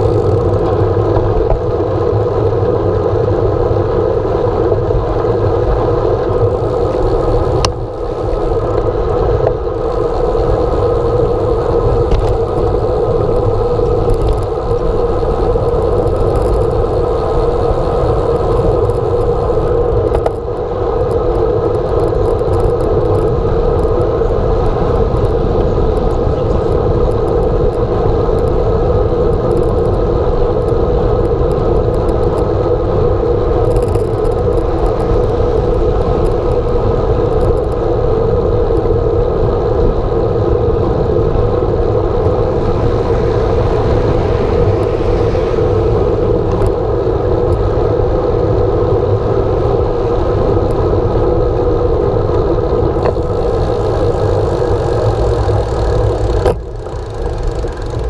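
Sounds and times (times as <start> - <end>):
road rumble: 0.0 - 58.0
wind rushing: 40.6 - 58.0.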